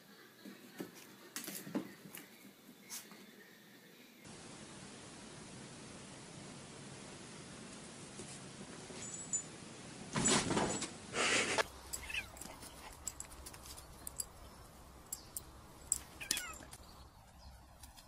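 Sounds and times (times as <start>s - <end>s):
pet crying loudly: 11.9s - 12.4s.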